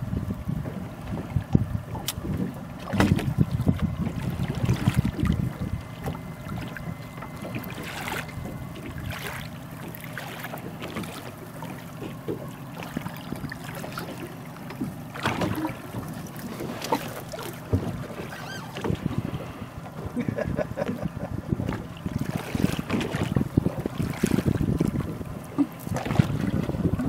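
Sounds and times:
wind buffeting microphone: 0.0 - 9.4, 17.6 - 27.0
water slapping against boat hull: 0.0 - 27.0.

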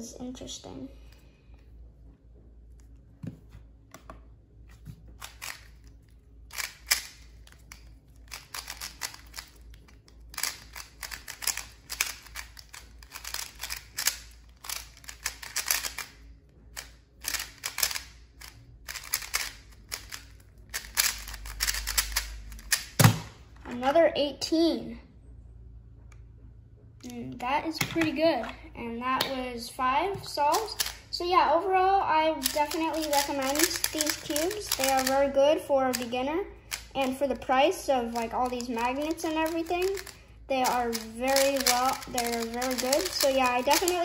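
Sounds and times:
puzzle cube clicking: 5.2 - 5.9, 6.5 - 16.2, 16.8 - 23.0, 32.4 - 35.2, 38.4 - 44.0.

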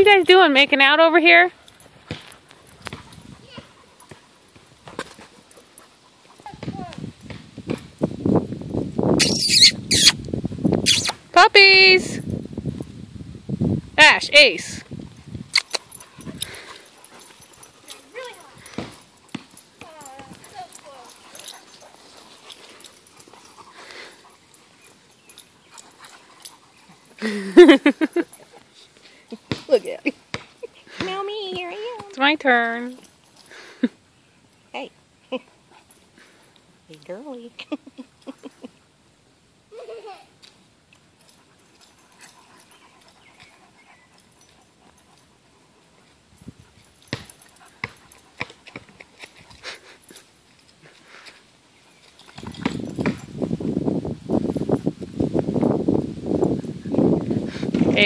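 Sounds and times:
dogs scuffling and breathing: 1.1 - 8.6, 14.7 - 39.0, 39.8 - 58.0
dogs yipping: 9.2 - 10.2, 10.8 - 11.2, 15.5 - 30.8, 41.1 - 50.3.

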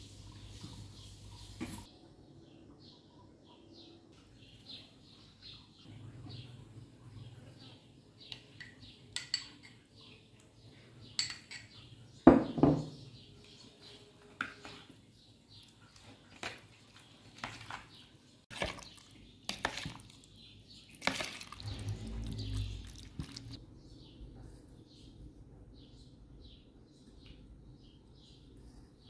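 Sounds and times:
spoon stirring and scraping: 7.4 - 12.1, 13.5 - 23.6
metal spoon clinking on bowls: 8.3 - 10.0, 11.0 - 11.9.

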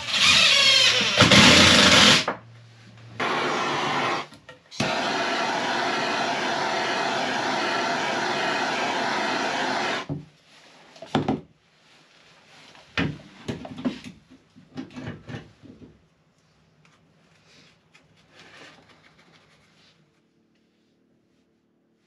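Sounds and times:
blowtorch hissing: 3.2 - 10.1.

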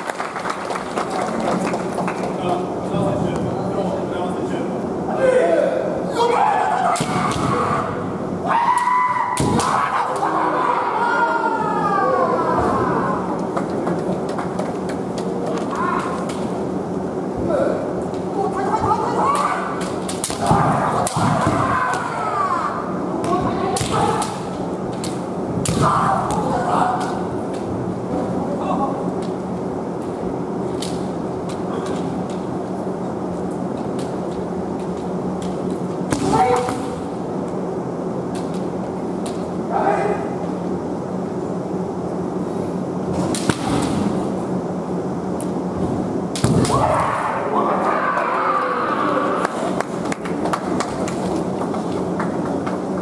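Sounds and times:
fighters shouting: 5.1 - 13.3, 18.6 - 24.6, 25.7 - 27.3, 36.2 - 37.0, 46.6 - 49.5
sharp crack of a strike: 9.4 - 9.8, 25.6 - 26.5, 46.4 - 47.0
bamboo swords striking: 20.1 - 22.1, 23.8 - 26.5
person shouting: 36.2 - 36.7.

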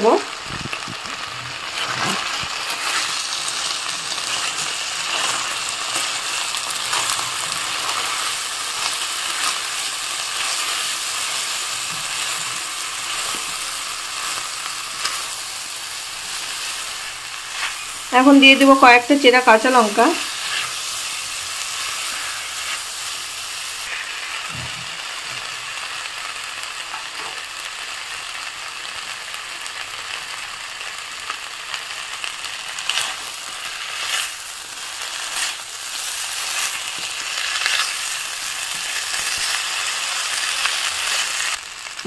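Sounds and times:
vegetables sizzling in oil: 0.0 - 42.0
spatula scraping a pan: 20.2 - 23.2.

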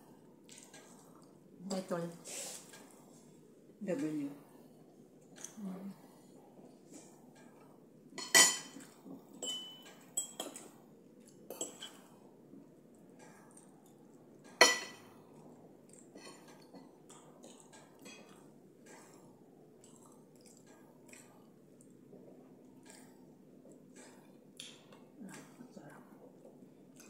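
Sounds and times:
cutlery clinking on ceramic plates: 8.2 - 10.8, 11.5 - 12.1, 14.5 - 15.1.

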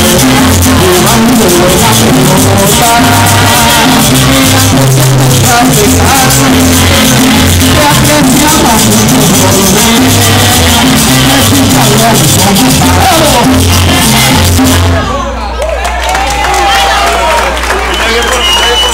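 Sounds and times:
shaken percussion: 0.0 - 14.9
people singing: 0.0 - 15.2
bass line: 0.0 - 15.6.

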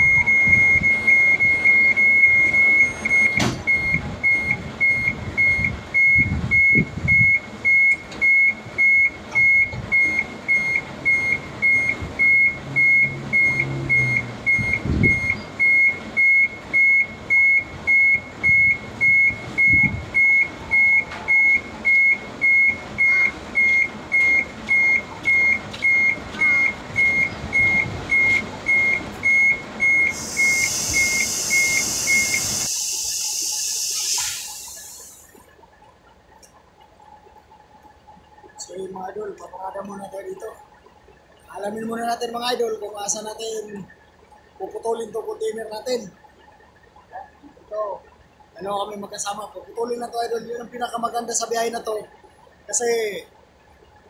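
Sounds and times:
low truck engine rumble: 0.0 - 54.0
truck reversing alarm beeps: 0.0 - 54.0
air hiss: 30.1 - 35.3.

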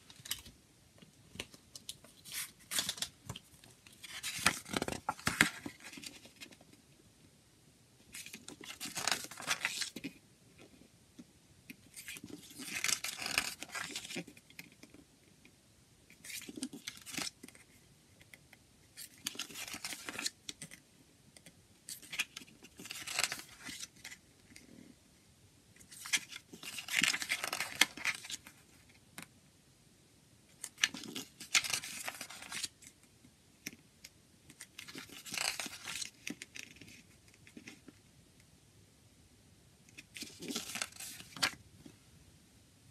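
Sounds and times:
paper pages turning: 1.3 - 6.6, 8.1 - 10.2, 11.8 - 14.9, 16.2 - 17.6, 19.0 - 20.8, 21.9 - 24.2, 25.8 - 28.9, 30.6 - 32.8, 34.5 - 37.9, 40.0 - 41.6.

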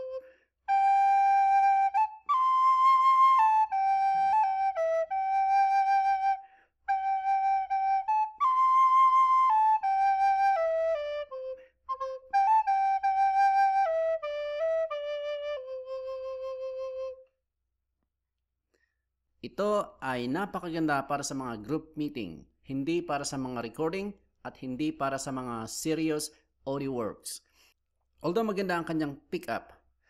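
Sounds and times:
wooden flute slow melody: 0.0 - 17.4.

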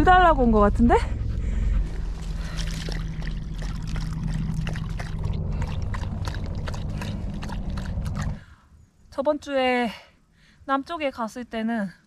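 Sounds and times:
steady low rumble: 0.0 - 9.0
dog lapping water: 2.1 - 8.4.

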